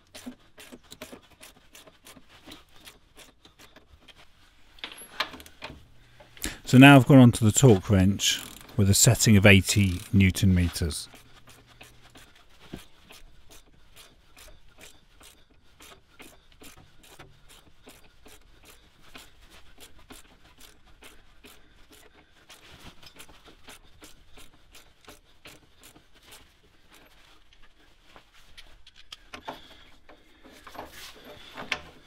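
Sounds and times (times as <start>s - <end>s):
torque wrench clicking: 8.4s - 8.8s, 9.8s - 10.2s, 12.8s - 27.0s.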